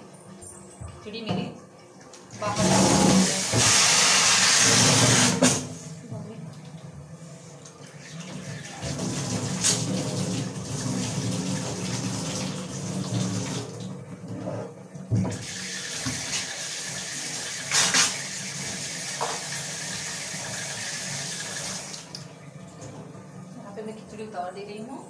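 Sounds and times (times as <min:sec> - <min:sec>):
tap water running into sink: 0:02.1 - 0:06.9, 0:07.7 - 0:23.4.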